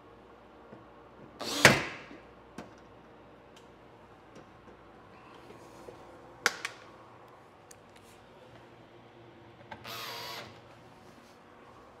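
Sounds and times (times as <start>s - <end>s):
cordless drill driving a screw: 9.8s - 10.5s.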